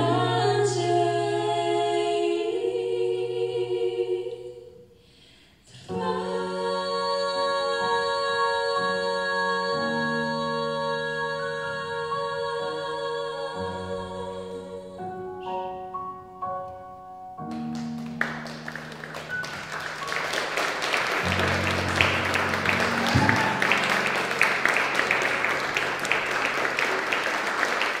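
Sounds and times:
audience applauding: 17.5 - 28.0
backing track held notes: 21.1 - 26.8.

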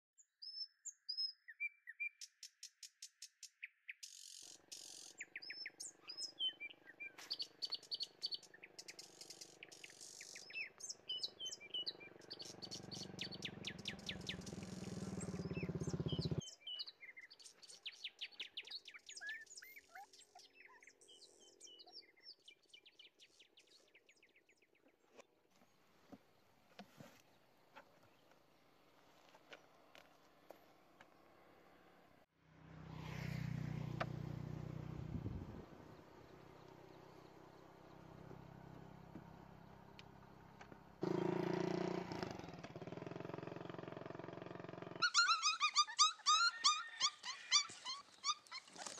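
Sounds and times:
small birds chirping: 0.2 - 26.5, 35.2 - 41.4, 44.9 - 48.9
vehicle engine: 6.0 - 16.4, 29.9 - 45.0.

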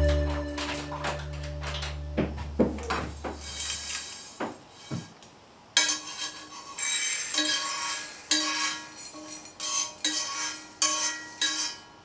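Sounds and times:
metal bowl ringing: 0.0 - 2.2.

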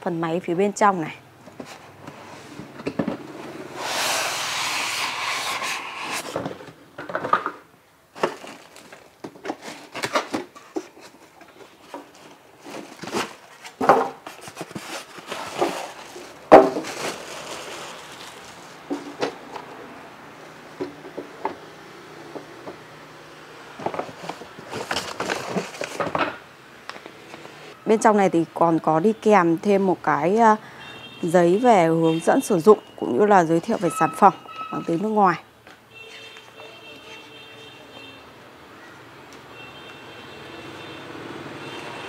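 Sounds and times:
grill sliding out of cardboard box: 3.4 - 6.6
plastic wrapping rustling: 8.1 - 19.5, 23.7 - 26.4
styrofoam pieces rubbing: 8.2 - 19.0.

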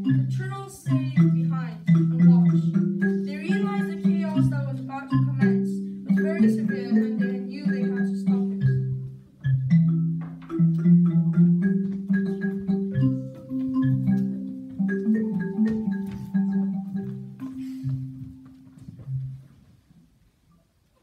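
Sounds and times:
melody of short pitched notes: 0.0 - 19.5.

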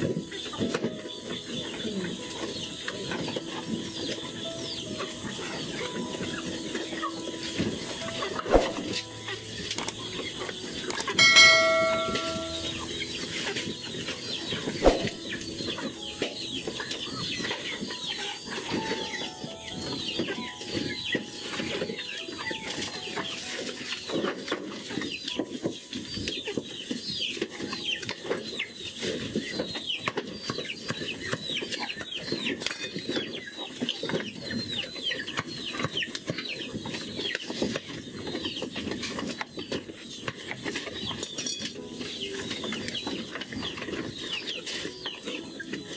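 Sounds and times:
birds chirping: 0.0 - 45.9
bell-like chime: 11.1 - 14.7
goats feeding at wooden trough: 15.3 - 45.9.

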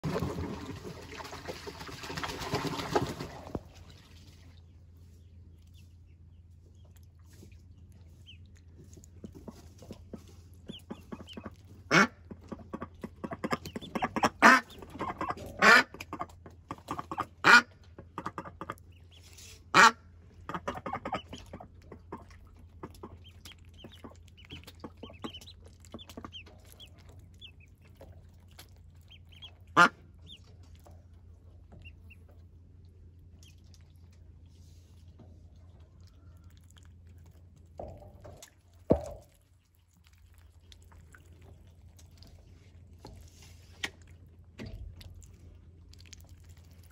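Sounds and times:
small water splashes: 0.0 - 4.9, 6.8 - 46.9
ducklings peeping softly: 3.4 - 46.9.

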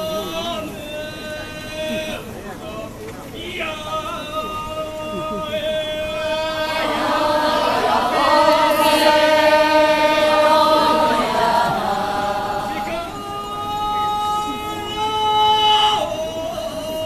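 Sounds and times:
group chanting in chorus: 5.2 - 13.4.

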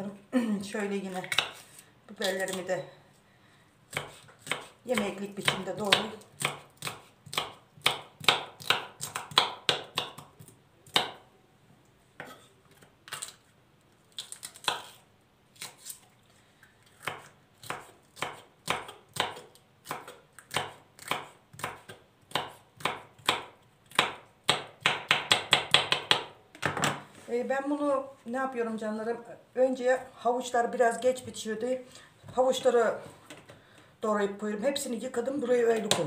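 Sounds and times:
knife chopping on cutting board: 1.2 - 1.7, 3.9 - 10.3, 10.9 - 11.2, 17.0 - 26.9.

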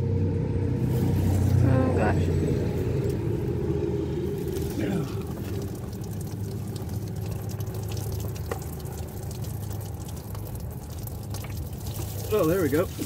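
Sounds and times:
liquid pouring and dripping: 2.6 - 13.0.

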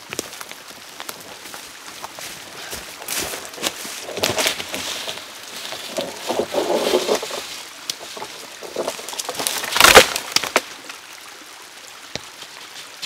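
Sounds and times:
dry wood crackling and rustling: 0.0 - 13.0
loud sharp wood crack: 6.3 - 11.0.

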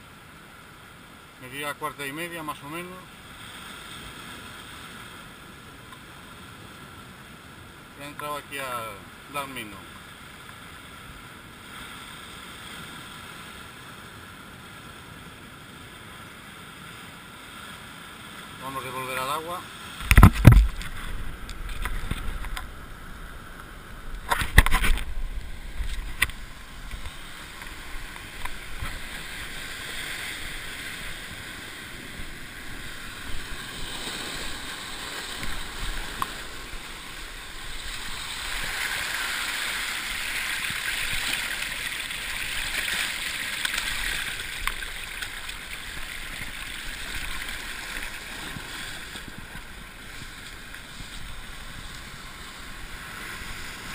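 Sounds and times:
sea surf breaking over rocks: 0.7 - 53.9
loud thump: 20.0 - 20.8.

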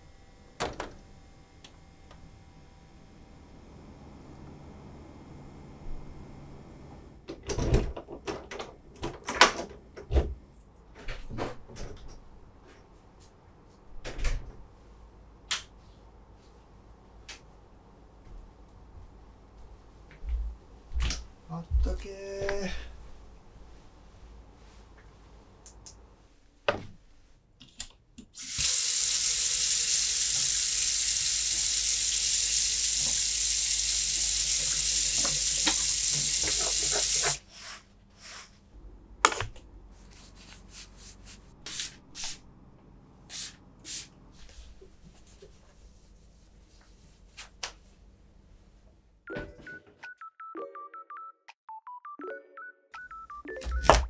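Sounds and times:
tap running into metal sink: 34.6 - 37.4.

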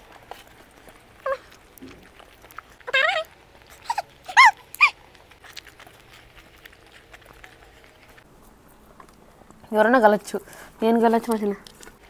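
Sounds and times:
high-pitched animal cries: 2.8 - 5.0.

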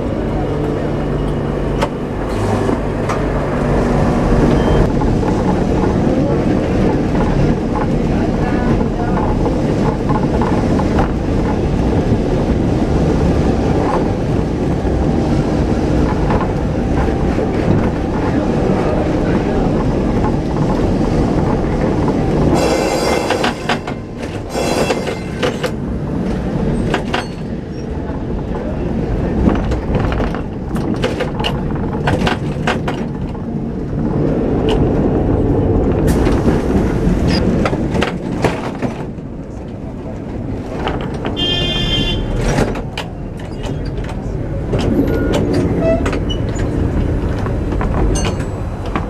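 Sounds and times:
tram rumbling on rails: 0.0 - 49.0
clicks and knocks from track: 15.6 - 28.7, 29.3 - 35.2, 35.8 - 49.0.

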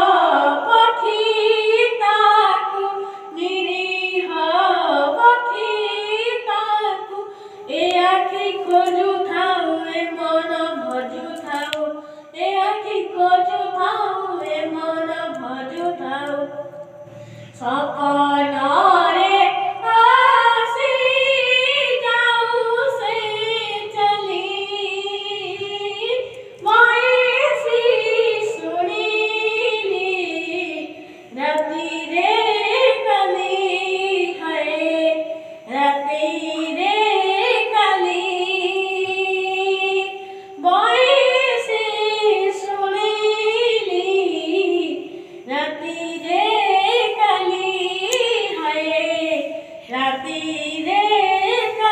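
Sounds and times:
boy singing into microphone: 0.0 - 51.9
quick breaths: 3.0 - 3.3, 7.3 - 7.7, 12.0 - 12.4, 17.0 - 17.6, 31.0 - 31.4, 40.2 - 40.6.

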